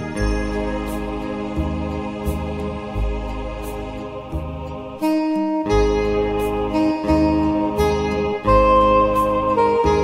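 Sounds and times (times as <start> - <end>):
organ bass line: 0.0 - 5.0, 5.7 - 10.0
electronic organ saxophone melody: 5.0 - 10.0.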